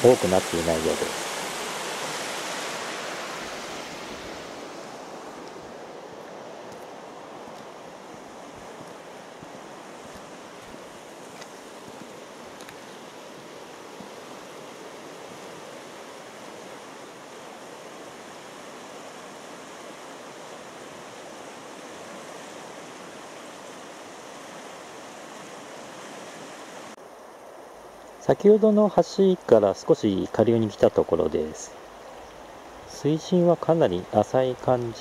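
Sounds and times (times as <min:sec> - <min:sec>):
river running over gravel: 0:00.0 - 0:26.9, 0:32.4 - 0:35.0.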